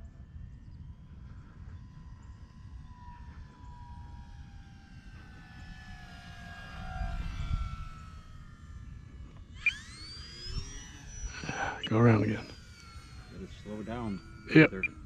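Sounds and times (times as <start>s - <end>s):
wind noise on microphone: 0.0s - 8.7s
model plane electric motor whining: 0.0s - 15.0s.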